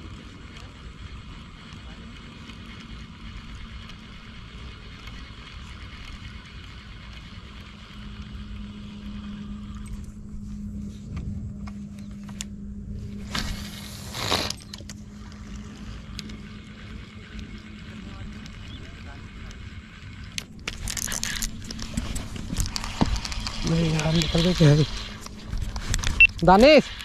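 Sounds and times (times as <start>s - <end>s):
low motor hum: 0.0s - 27.0s
fishing reel clicks: 20.3s - 21.9s.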